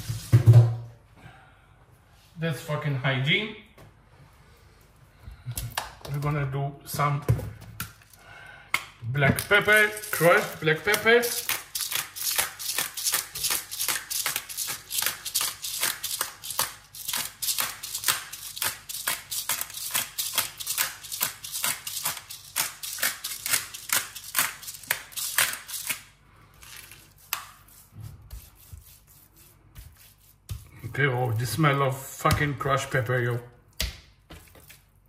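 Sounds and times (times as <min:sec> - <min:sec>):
pepper mill grinding: 0:09.4 - 0:26.0.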